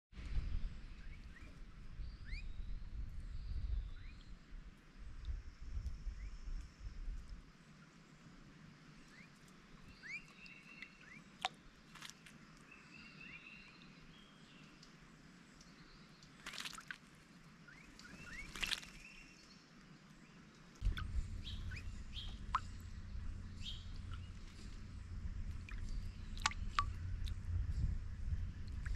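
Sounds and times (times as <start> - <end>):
low steady rumble: 0.2 - 8.8, 20.8 - 28.9
small birds chirping: 5.7 - 16.9, 17.6 - 28.9
bird splashing in water: 11.4 - 12.4, 16.2 - 19.2, 20.8 - 28.9.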